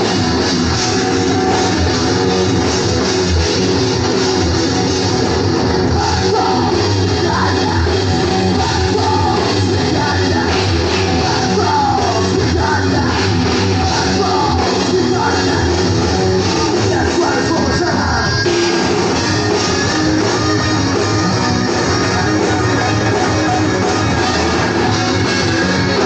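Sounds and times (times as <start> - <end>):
bass guitar: 0.0 - 26.0
drums: 0.0 - 26.0
electric guitars: 0.0 - 26.0
person singing: 5.8 - 18.7.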